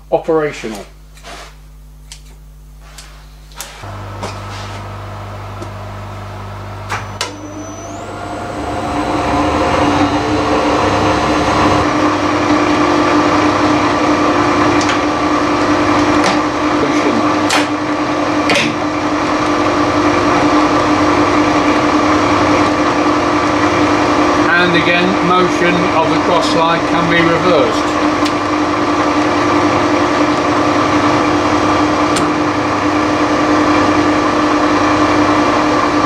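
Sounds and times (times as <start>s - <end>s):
steady hum: 0.0s - 36.0s
lathe running whine: 3.2s - 36.0s.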